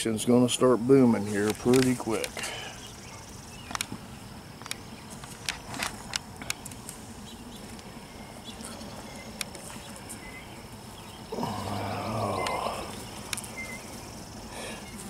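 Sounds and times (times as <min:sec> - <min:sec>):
honeybees buzzing: 0:00.0 - 0:15.0.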